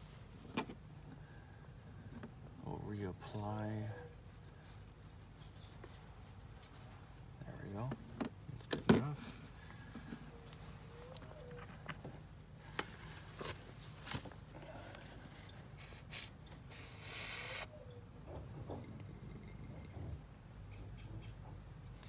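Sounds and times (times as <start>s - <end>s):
squeeze bottle nozzle hissing: 15.8s - 17.7s.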